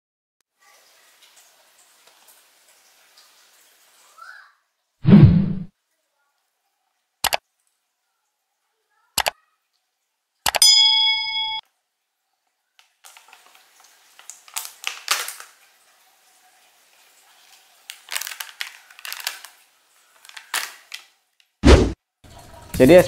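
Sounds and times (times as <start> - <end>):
short bell-like chime: 10.6 - 11.6
plastic lids crackling: 17.9 - 19.6, 20.2 - 21.1.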